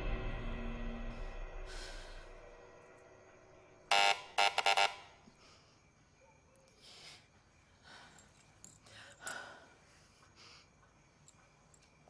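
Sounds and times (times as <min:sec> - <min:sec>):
woman breathing and sighing: 0:01.5 - 0:02.6, 0:06.8 - 0:11.0.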